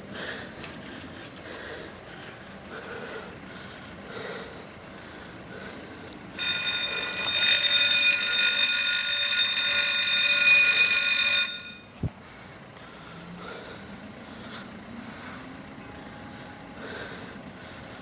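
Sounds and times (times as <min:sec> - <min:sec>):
bridge warning bell ringing: 0:06.4 - 0:12.0.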